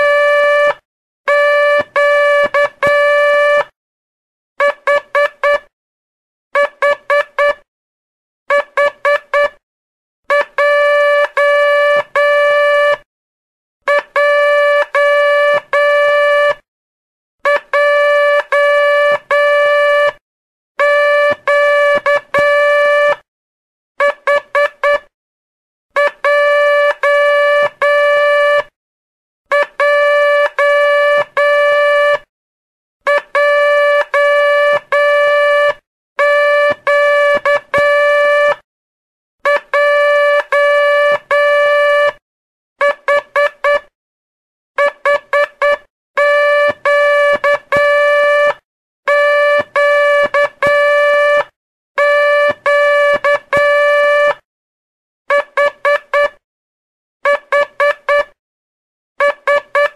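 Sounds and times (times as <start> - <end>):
morse code tone: 0.0 - 3.7, 4.6 - 5.7, 6.6 - 7.7, 10.3 - 13.0, 13.9 - 16.6, 17.5 - 20.2, 20.8 - 23.2, 24.0 - 25.1, 26.0 - 28.8, 29.5 - 32.2, 33.1 - 38.6, 39.4 - 42.2, 42.8 - 43.9, 44.8 - 54.4, 55.3 - 56.4, 57.2 - 58.4, 59.2 - 59.9.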